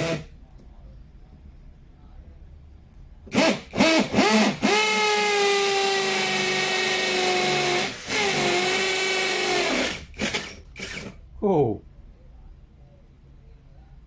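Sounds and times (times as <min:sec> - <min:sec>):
cordless drill boring into wood: 0:03.3 - 0:11.2
drill trigger blips: 0:03.3 - 0:11.2.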